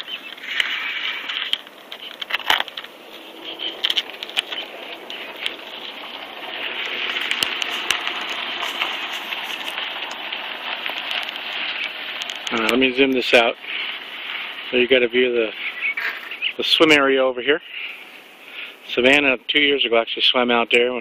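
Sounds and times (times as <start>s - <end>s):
bicycle clicks and rattles: 0.0s - 12.8s.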